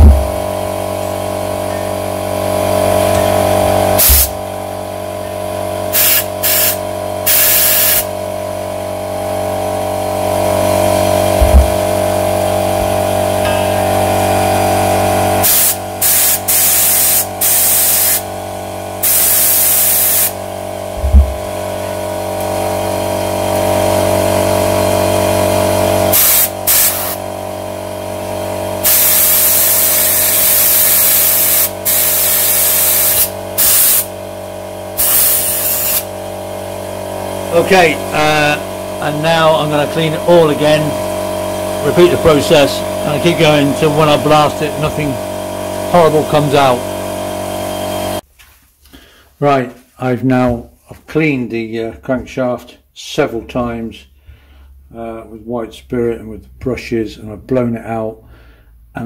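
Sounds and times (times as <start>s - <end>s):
steady hum: 2.8s - 18.3s, 37.2s - 46.9s
compressed air blow gun hissing: 4.0s - 4.4s, 5.9s - 8.1s, 15.4s - 18.2s, 19.0s - 20.4s, 26.1s - 27.2s, 28.8s - 34.1s, 35.0s - 36.1s
dull knocks: 11.4s - 11.8s.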